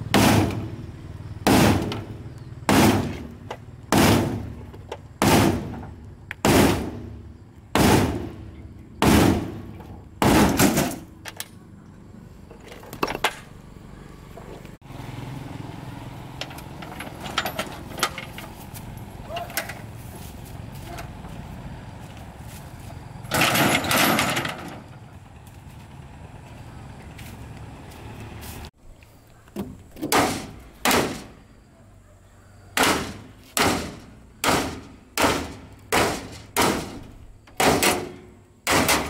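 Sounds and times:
hammer pounding on steel: 32.8s - 37.0s, 37.6s - 39.0s.

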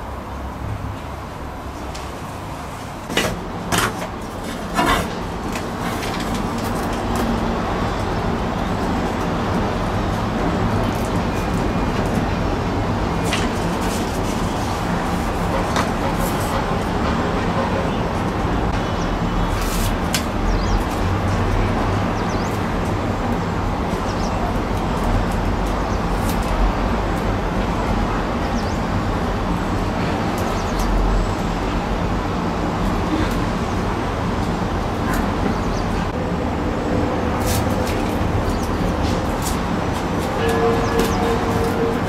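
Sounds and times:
tape tearing and crackling: 3.1s - 8.1s, 13.2s - 16.5s, 24.6s - 26.7s, 37.4s - 42.0s.

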